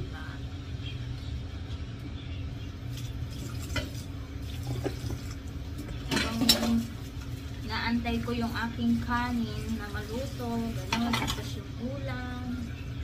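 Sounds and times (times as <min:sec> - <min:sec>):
steady low hum: 0:00.0 - 0:13.0
tap water running: 0:02.9 - 0:11.7
clinks of dishes and utensils: 0:06.0 - 0:06.9, 0:10.8 - 0:11.6.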